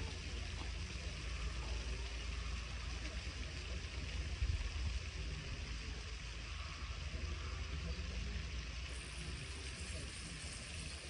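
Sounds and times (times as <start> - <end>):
low uneven rumble: 0.0 - 11.0
hiss: 6.0 - 11.0.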